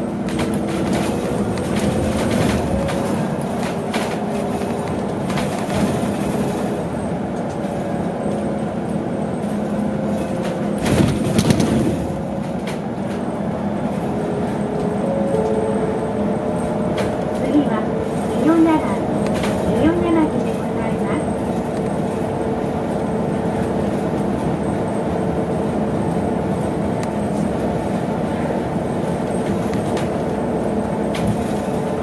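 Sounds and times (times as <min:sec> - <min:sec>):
road and tyre noise: 0:00.0 - 0:32.0
interior rattles and knocks: 0:00.2 - 0:07.0, 0:09.4 - 0:13.2.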